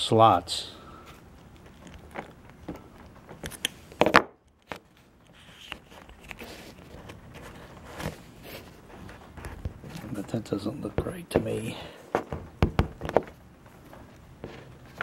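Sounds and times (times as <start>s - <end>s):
plastic parts clicking and scraping: 1.1s - 10.3s.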